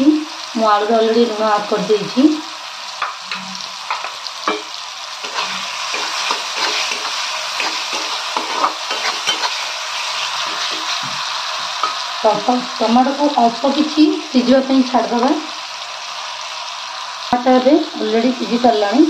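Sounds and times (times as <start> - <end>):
tomatoes sizzling in oil: 0.0 - 19.0
metal spatula scraping pan: 3.3 - 11.2.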